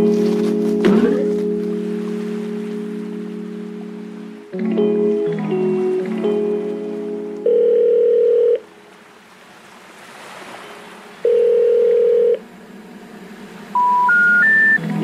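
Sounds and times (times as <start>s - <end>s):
telephone beep: 7.4s - 8.6s, 11.3s - 12.4s, 13.8s - 14.8s
three rising telephone tones: 7.4s - 8.6s, 11.2s - 12.4s, 13.7s - 14.8s.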